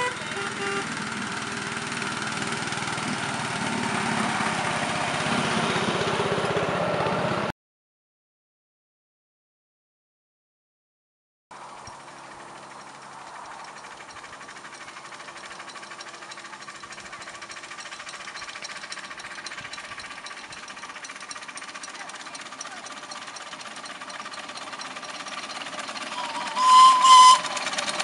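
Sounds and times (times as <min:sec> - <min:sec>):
steam locomotive exhaust beating: 0:00.0 - 0:07.5, 0:11.6 - 0:28.0.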